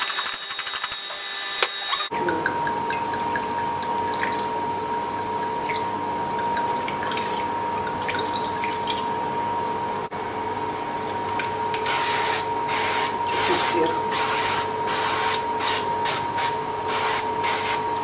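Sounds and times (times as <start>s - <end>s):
drips: 2.0s - 9.1s.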